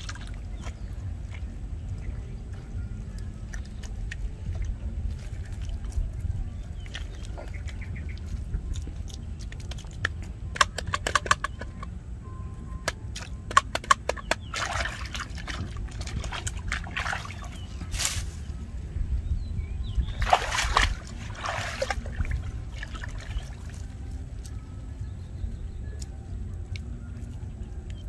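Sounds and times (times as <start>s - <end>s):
mud sloshing and splashing: 0.0s - 2.7s, 3.4s - 10.8s, 14.2s - 18.5s, 20.0s - 24.1s.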